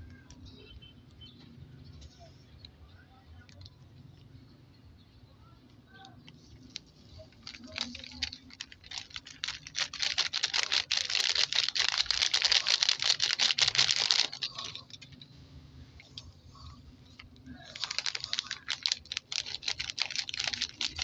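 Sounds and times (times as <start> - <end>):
plastic sachet crinkling: 6.6 - 15.2, 17.2 - 21.0.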